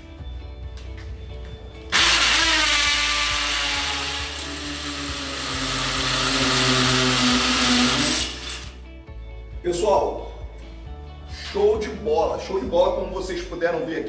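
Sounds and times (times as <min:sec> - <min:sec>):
cordless drill boring: 0:01.9 - 0:08.8.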